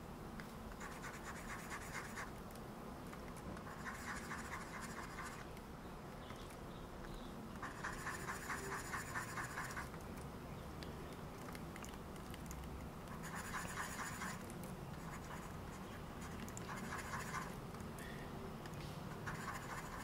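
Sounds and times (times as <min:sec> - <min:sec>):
stylus scratching on tablet: 0:00.7 - 0:02.3, 0:03.6 - 0:05.5, 0:07.6 - 0:10.0, 0:13.1 - 0:17.6, 0:19.1 - 0:20.0.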